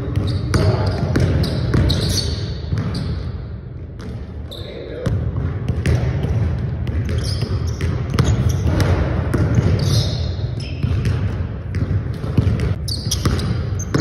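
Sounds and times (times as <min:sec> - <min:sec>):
sneaker squeaks: 0:00.0 - 0:05.1, 0:06.9 - 0:14.0
basketball bouncing on hardwood: 0:00.1 - 0:02.1, 0:05.1 - 0:09.9, 0:10.6 - 0:14.0.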